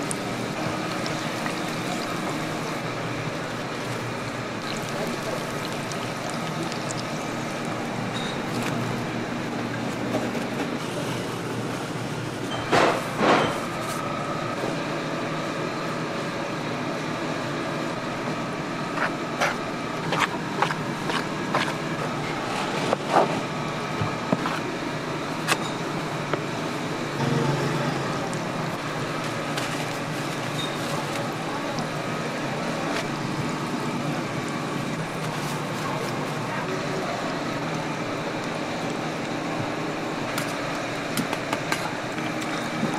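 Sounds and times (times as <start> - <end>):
steady machine hum: 0.0 - 42.9.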